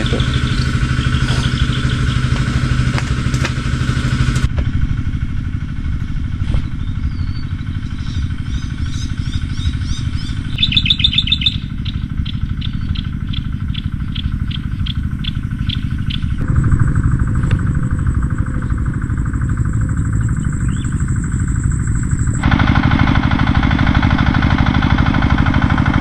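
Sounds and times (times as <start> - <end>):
birds chirping: 0.0 - 4.4, 6.6 - 16.6, 17.3 - 22.4
small engine running: 0.0 - 26.0.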